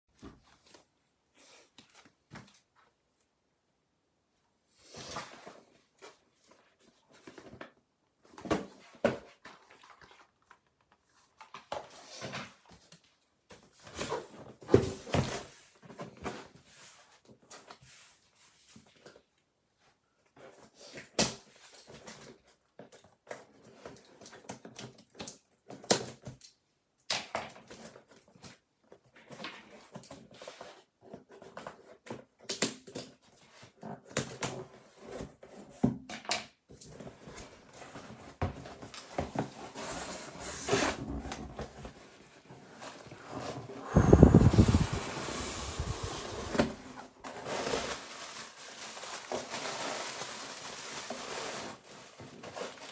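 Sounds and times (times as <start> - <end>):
cardboard rustling: 36.9 - 52.9.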